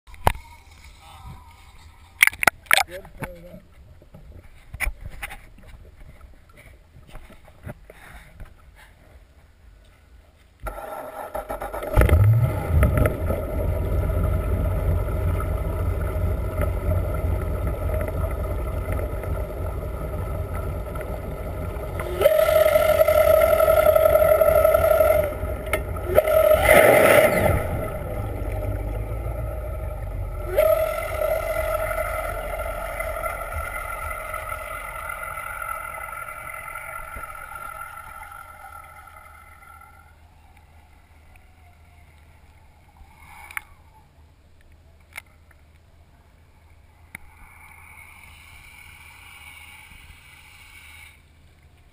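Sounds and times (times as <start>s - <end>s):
boat engine heard underwater: 10.7s - 44.1s, 46.6s - 51.2s.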